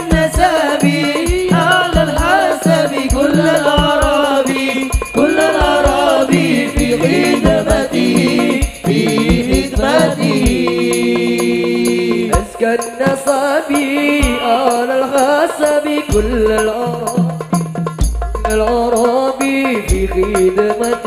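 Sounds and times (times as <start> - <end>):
man singing ornamented melody: 0.0 - 17.5
hand drums beating: 0.0 - 21.0.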